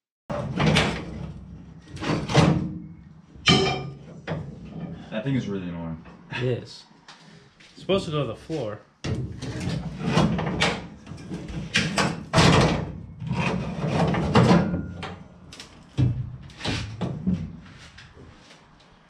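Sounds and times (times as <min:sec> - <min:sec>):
sheet metal clanking and scraping: 0:00.3 - 0:05.1, 0:09.0 - 0:17.7.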